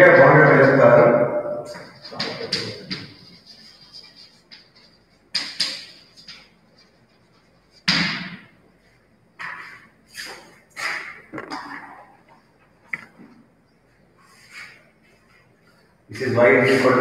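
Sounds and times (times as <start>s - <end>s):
chalk scraping on blackboard: 1.8s - 7.8s
sharp knocks and thuds: 7.8s - 8.5s.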